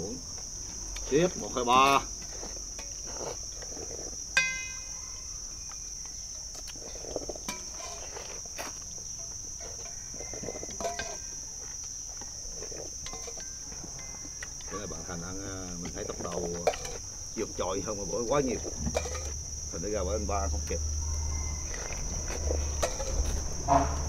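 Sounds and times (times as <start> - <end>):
high-pitched insect drone: 0.0 - 24.0
slurping and chewing noodles: 2.3 - 4.2, 6.6 - 8.9.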